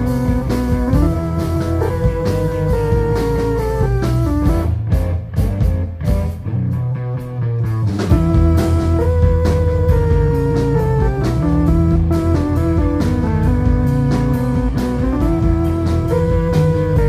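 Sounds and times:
bass guitar: 0.0 - 17.0
electric guitar: 0.0 - 17.0
keyboard: 0.0 - 17.0.

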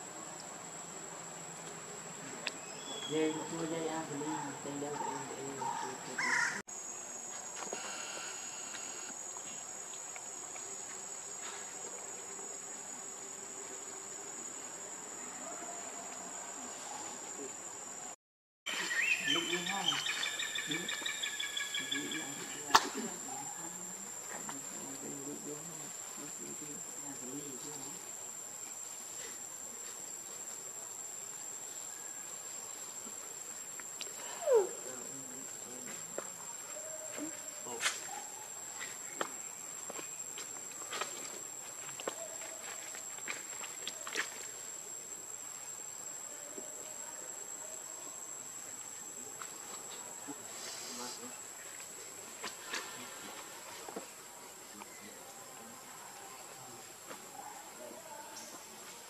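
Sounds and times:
insects droning: 0.0 - 59.0
soft hiss: 44.2 - 56.8.

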